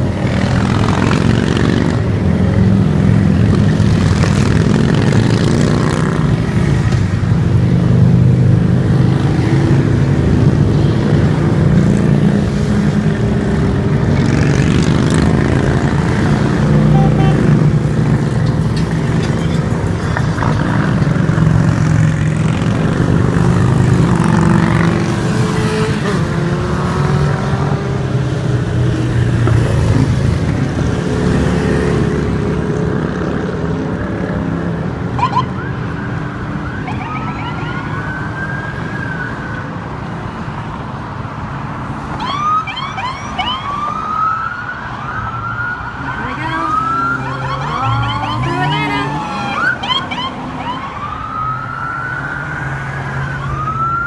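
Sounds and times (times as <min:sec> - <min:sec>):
motorcycles and cars passing: 0:00.0 - 0:54.0
police siren whoops: 0:35.2 - 0:39.6, 0:42.2 - 0:54.0.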